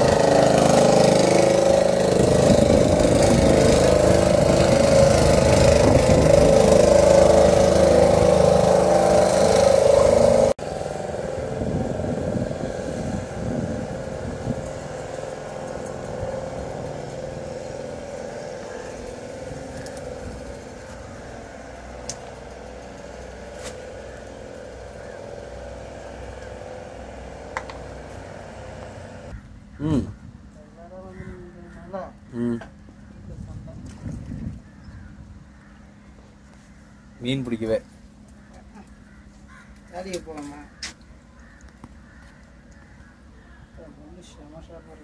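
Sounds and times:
boat engine running: 0:00.0 - 0:30.2.

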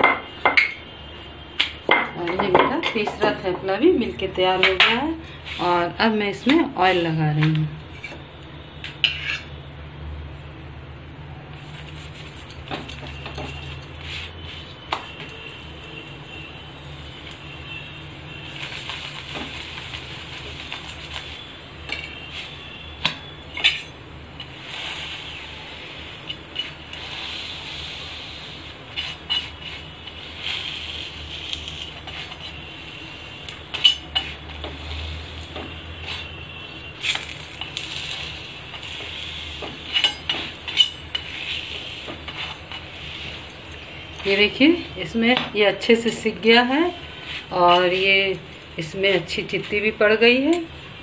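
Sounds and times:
oil sizzling: 0:11.6 - 0:45.1
spatula scraping an iron pan: 0:28.9 - 0:32.6.

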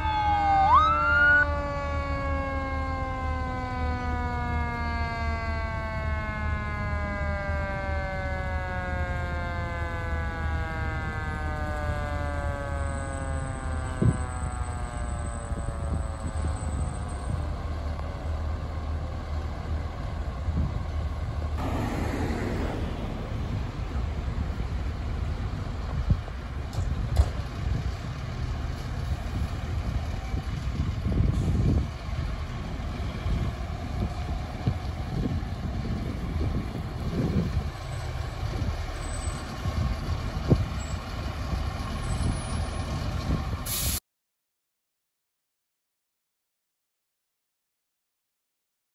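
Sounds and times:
fire engine rumbling: 0:00.0 - 0:44.0
sudden rush of noise: 0:21.5 - 0:26.2.

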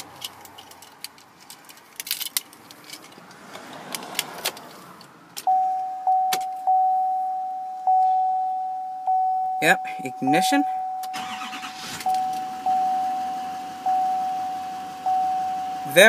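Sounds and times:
keys jangling: 0:00.0 - 0:03.2
dashboard warning chime: 0:05.4 - 0:16.0.

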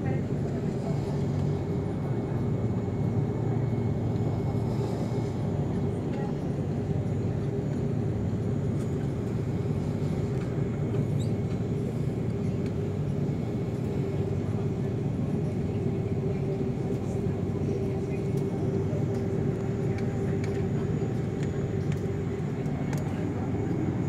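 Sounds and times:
airplane cabin engine rumble: 0:00.0 - 0:24.0.

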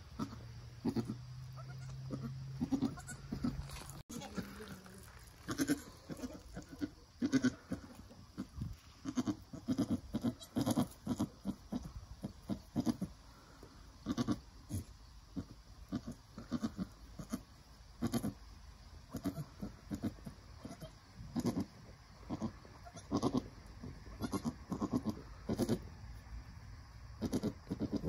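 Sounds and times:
goat making short low calls: 0:05.5 - 0:07.8.

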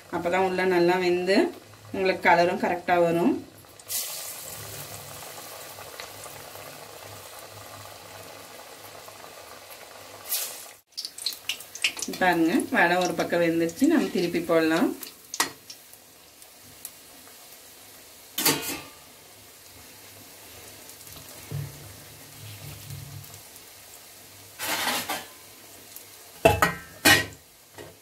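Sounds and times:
oil sizzling: 0:00.0 - 0:28.0
metal ladle scraping a pan: 0:24.6 - 0:25.3.

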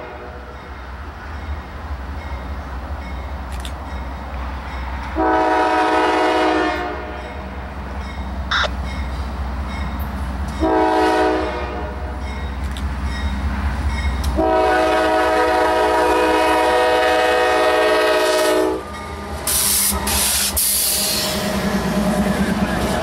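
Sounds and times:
locomotive horn blasts: 0:05.2 - 0:07.4, 0:10.6 - 0:12.1, 0:14.4 - 0:18.8.

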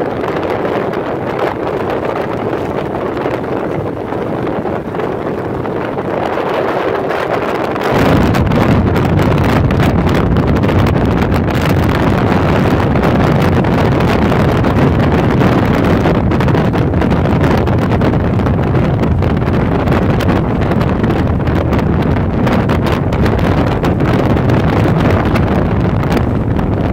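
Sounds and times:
wind buffeting microphone: 0:00.0 - 0:26.9.

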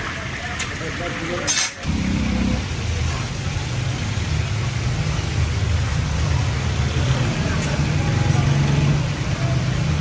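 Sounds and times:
food frying in deep oil: 0:00.0 - 0:10.0.

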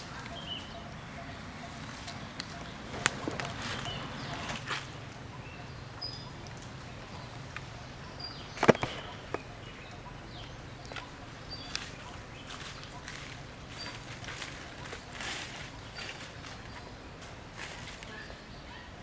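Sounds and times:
high chirps: 0:00.0 - 0:18.8.

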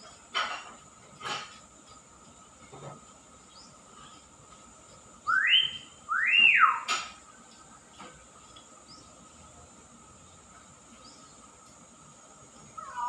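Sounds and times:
myna bird whistling: 0:05.2 - 0:06.9, 0:12.8 - 0:13.0.

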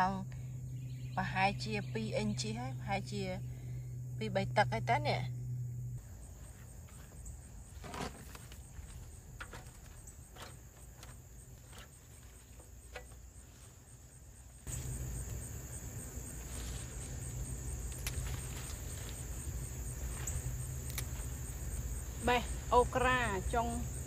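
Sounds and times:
crickets chirping: 0:00.0 - 0:24.0
low rumble: 0:00.2 - 0:06.0
light clicks and rustles in plants: 0:06.4 - 0:22.4.

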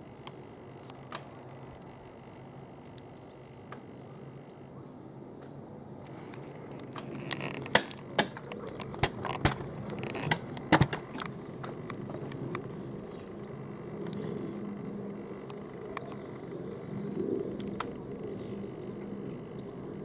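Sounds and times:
distant helicopter drone: 0:00.0 - 0:20.0
sharp clicks and rattles: 0:06.0 - 0:19.7.

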